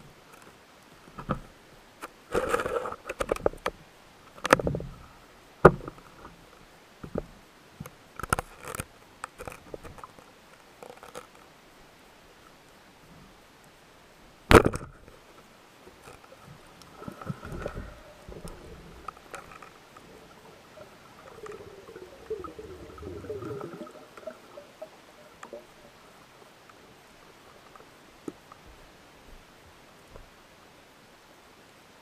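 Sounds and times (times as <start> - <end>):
muffled gurgling water: 16.4 - 26.6.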